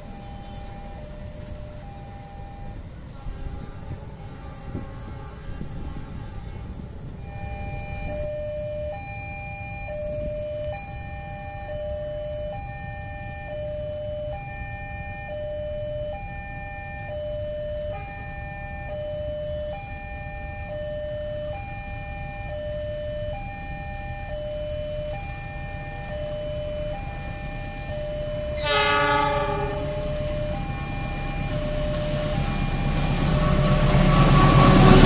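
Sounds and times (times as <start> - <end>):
level crossing two-tone alarm: 0.0 - 4.8, 7.1 - 35.0
low rumble: 5.7 - 10.7.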